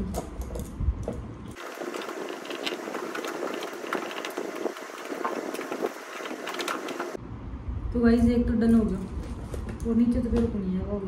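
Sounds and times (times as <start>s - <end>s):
items rustling and crackling: 0.0s - 7.2s.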